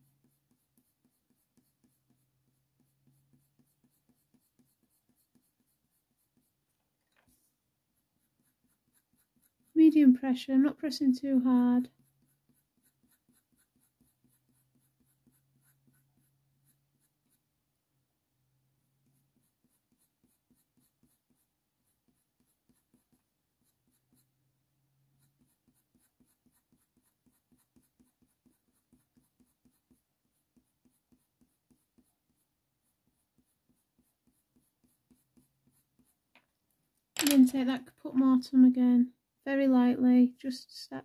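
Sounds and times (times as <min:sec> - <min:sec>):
pencil scratching on paper: 0:00.0 - 0:06.7, 0:07.3 - 0:17.5, 0:18.9 - 0:36.3.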